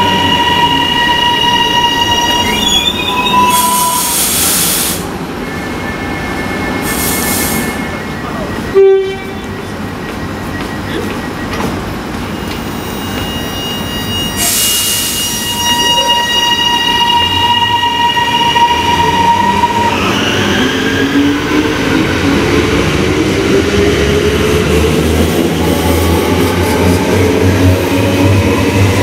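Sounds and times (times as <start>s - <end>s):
train electrical whine: 0.0s - 29.0s
train horn toot: 8.7s - 9.6s, 13.7s - 19.8s.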